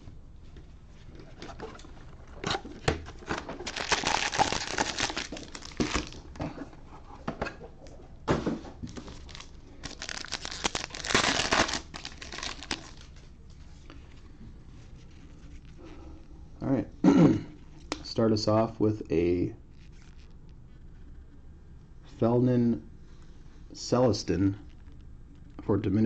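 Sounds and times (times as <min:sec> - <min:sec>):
foil wrapper crinkling: 0:03.2 - 0:06.3, 0:08.8 - 0:13.2
pack being torn open: 0:03.6 - 0:06.2, 0:08.9 - 0:13.2.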